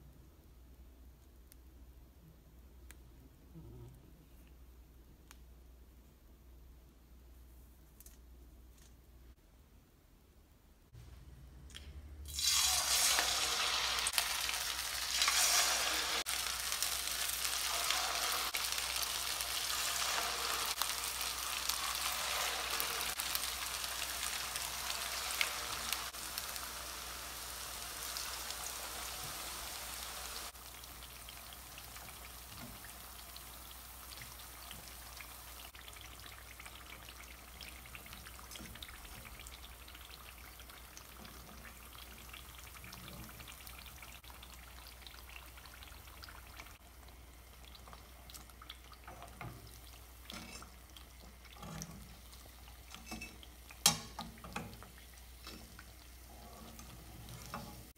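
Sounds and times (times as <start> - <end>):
dough sizzling in hot oil: 12.3 - 57.9.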